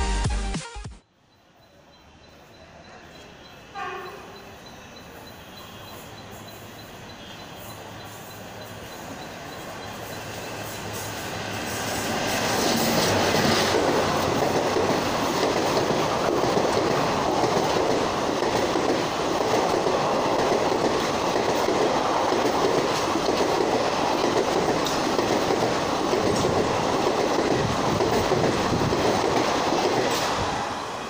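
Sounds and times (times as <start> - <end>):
train wheels rumbling on rails: 1.6 - 31.0
wheels clicking over rail joints: 12.1 - 30.5.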